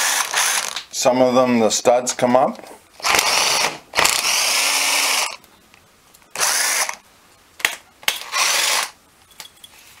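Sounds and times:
power tool whirring: 0.0 - 0.8, 3.0 - 5.4, 6.3 - 7.0, 8.2 - 9.0.

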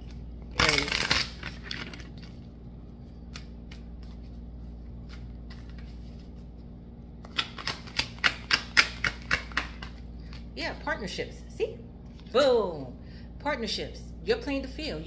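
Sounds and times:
cards being shuffled: 0.0 - 2.5, 3.2 - 6.5, 7.2 - 10.5.

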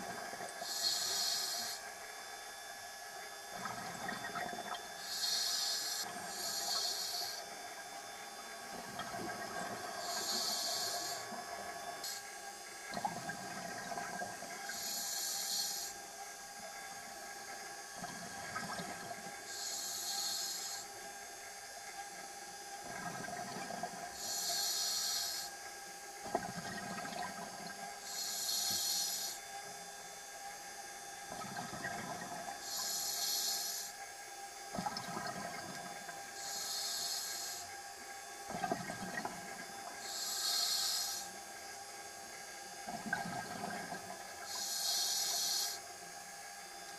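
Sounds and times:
diver inhaling through regulator: 0.6 - 1.8, 5.0 - 7.4, 10.0 - 11.4, 14.7 - 16.0, 19.5 - 20.9, 24.2 - 25.5, 28.1 - 29.4, 32.6 - 33.9, 36.4 - 37.7, 40.0 - 41.3, 44.5 - 45.8.

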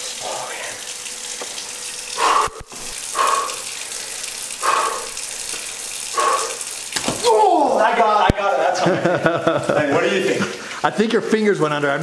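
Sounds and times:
water hissing: 0.0 - 7.8.

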